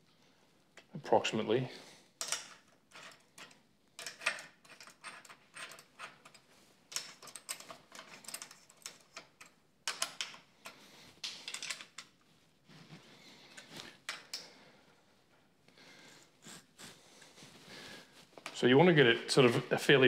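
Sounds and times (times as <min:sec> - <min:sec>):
metal parts clicking and tapping: 0:02.2 - 0:12.2, 0:13.6 - 0:14.5.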